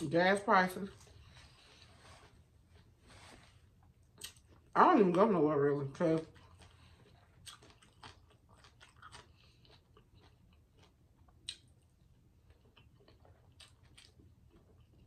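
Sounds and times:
close chewing of meat: 6.2 - 15.0.

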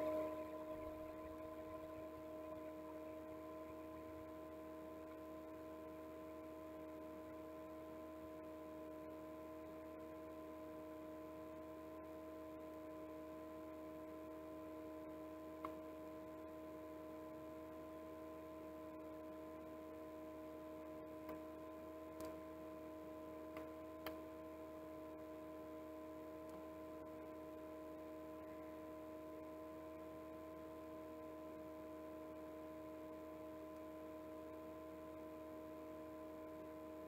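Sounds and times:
faint low drone: 0.0 - 5.2
room hum with held tones: 0.0 - 37.0
small click: 15.6 - 15.8, 21.2 - 21.5, 22.2 - 22.4, 23.5 - 24.2.

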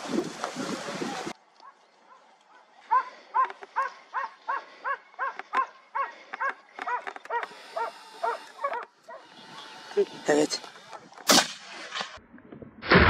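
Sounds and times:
dog barking: 1.6 - 9.3.

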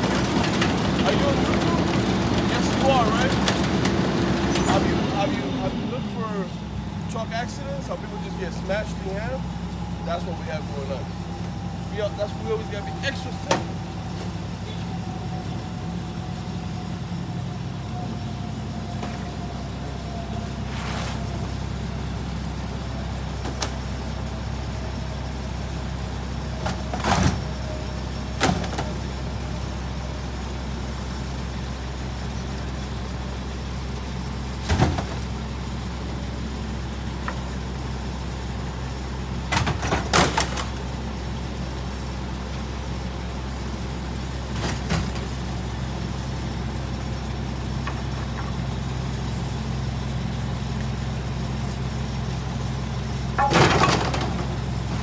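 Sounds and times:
truck diesel engine idling: 0.0 - 55.0
sharp bangs in hopper: 53.4 - 55.0.

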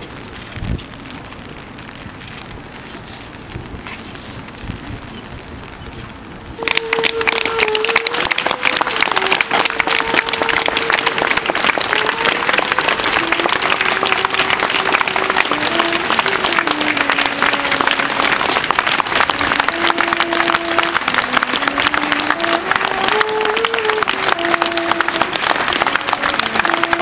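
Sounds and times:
crowd applauding: 6.6 - 27.0
slow saxophone melody: 6.6 - 27.0.

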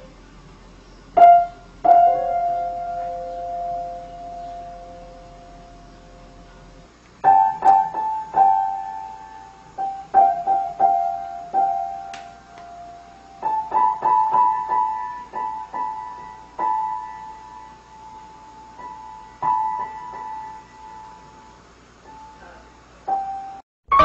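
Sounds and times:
piano notes struck by cat's paw: 7.2 - 9.2, 23.1 - 24.0.

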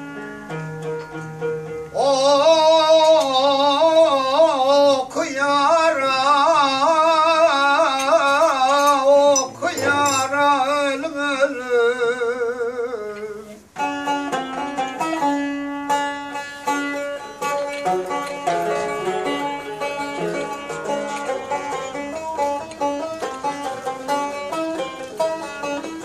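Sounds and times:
plucked lute: 0.0 - 26.0
man singing folk song: 1.9 - 13.6.

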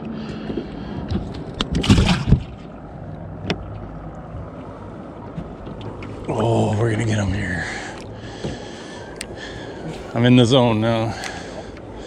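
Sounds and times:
sharp knocks in a boat: 0.0 - 2.8, 3.4 - 4.6, 5.3 - 6.4, 8.4 - 8.8
low steady hum: 0.0 - 12.0.

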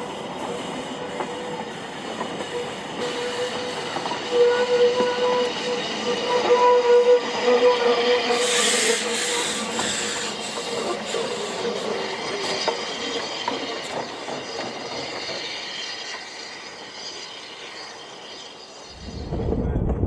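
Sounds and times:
train wheels clicking on rails: 0.0 - 18.9
steam hiss: 0.0 - 19.2
steam locomotive whistle: 1.0 - 11.5.

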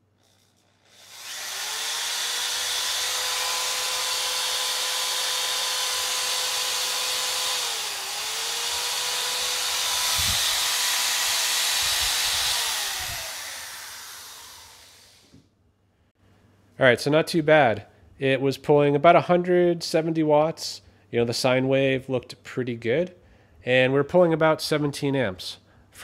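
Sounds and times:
electric drill whining: 0.2 - 15.4.

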